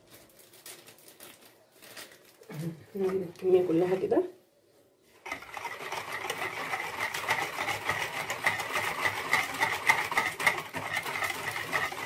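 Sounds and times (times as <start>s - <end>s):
whisk beating in plastic bowl: 5.2s - 12.0s.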